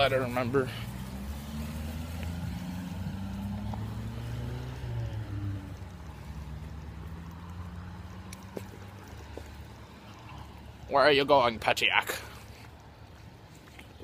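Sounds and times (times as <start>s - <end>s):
car engine hum: 0.0s - 10.6s.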